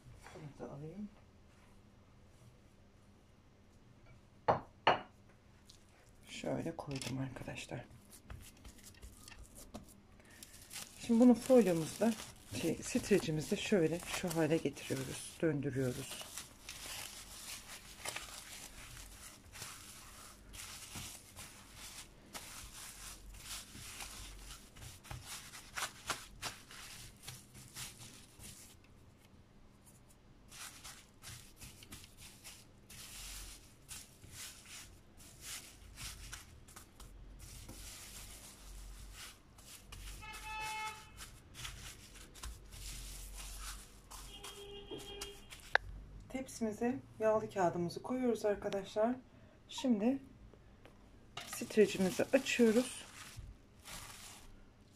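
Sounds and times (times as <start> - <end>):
plastic film crinkling: 6.7 - 29.0, 30.4 - 46.0, 51.4 - 54.9.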